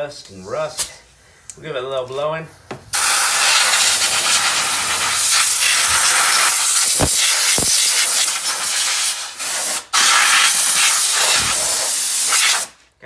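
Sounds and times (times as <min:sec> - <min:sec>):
compressed air blow gun hissing: 0:02.9 - 0:12.8.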